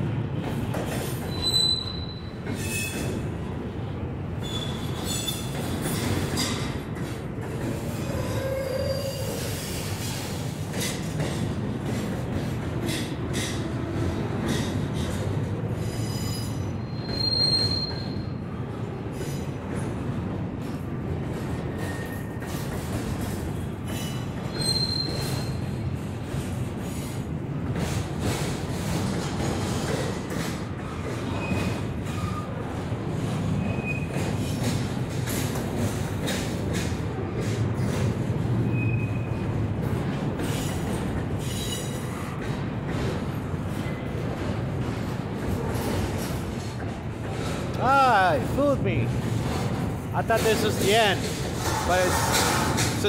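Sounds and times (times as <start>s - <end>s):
train wheels rumbling over rails: 0.0s - 53.0s
high-pitched wheel squeals: 1.3s - 3.0s, 15.9s - 18.4s, 24.5s - 25.6s.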